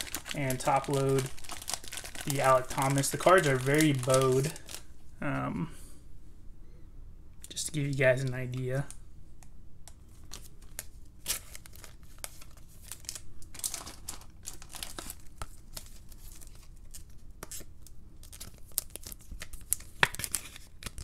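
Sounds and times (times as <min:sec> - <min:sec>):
thin plastic crinkling: 0:00.0 - 0:05.4, 0:09.9 - 0:21.0.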